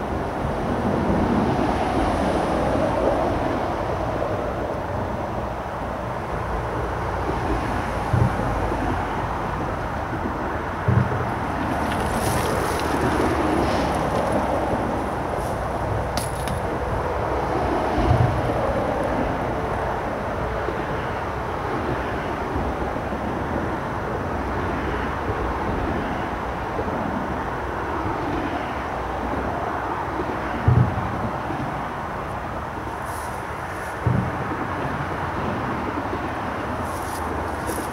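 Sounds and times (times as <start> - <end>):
road traffic rumble: 0.0 - 37.9
wind buffeting microphone: 0.0 - 37.9.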